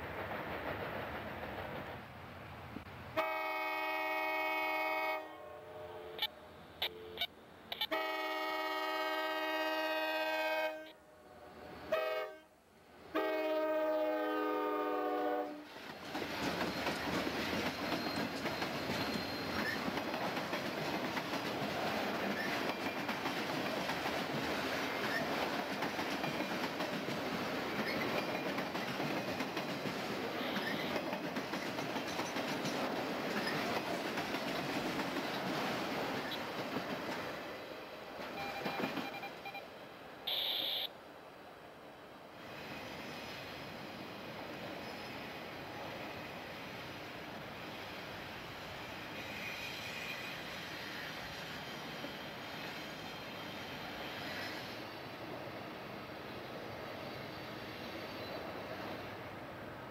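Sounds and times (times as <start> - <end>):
train wheels rushing on rail: 0.0 - 5.2, 13.2 - 40.2, 42.2 - 59.9
locomotive air horn blasts: 3.2 - 12.5, 13.1 - 15.6, 40.3 - 40.9.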